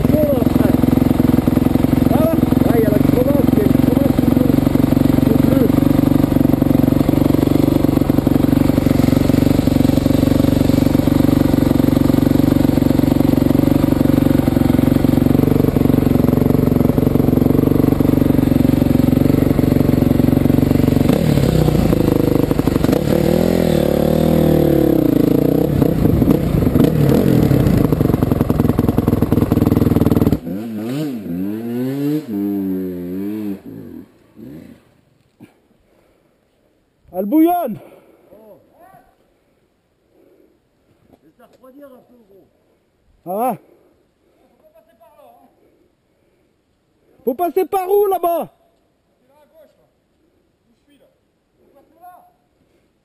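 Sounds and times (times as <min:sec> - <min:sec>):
faint engine rising and falling: 0:00.0 - 0:34.9
dirt bike engine revving: 0:00.0 - 0:35.0.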